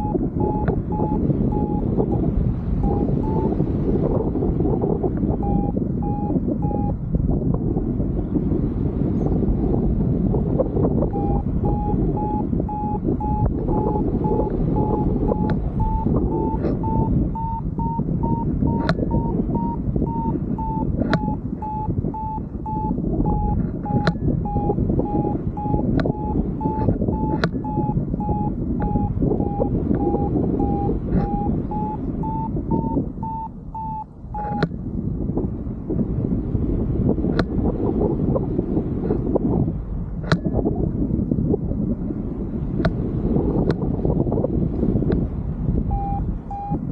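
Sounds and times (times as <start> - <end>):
variometer beeping: 0.0 - 7.1, 10.3 - 34.8, 40.2 - 40.7, 44.9 - 46.9
wind rushing over microphone: 0.0 - 46.9
sharp clicks: 20.6 - 22.4, 25.6 - 27.7.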